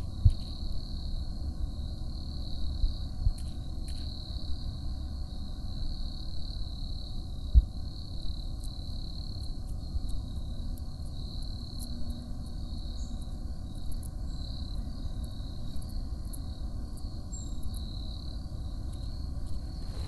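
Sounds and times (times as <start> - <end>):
insect trill: 0.0 - 20.0
faint high ticks: 8.6 - 18.0, 18.8 - 19.6
low rumble: 19.1 - 20.0.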